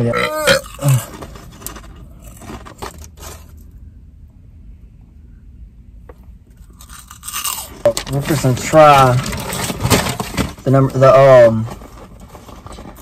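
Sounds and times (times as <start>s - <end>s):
low hum: 0.0s - 10.6s
paper bags rustling: 0.8s - 3.6s, 7.8s - 13.0s.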